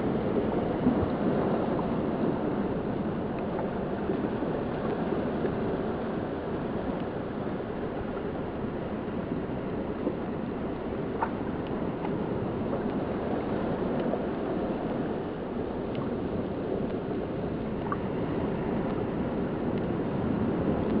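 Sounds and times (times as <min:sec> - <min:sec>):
sea surf on rocky shore: 0:00.0 - 0:21.0
faint ticks: 0:12.8 - 0:14.2, 0:19.7 - 0:20.0.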